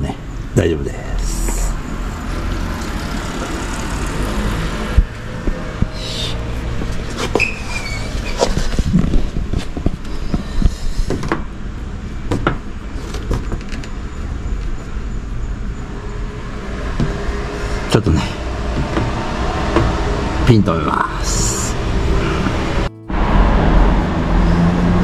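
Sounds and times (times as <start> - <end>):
low hum: 13.9 - 25.0.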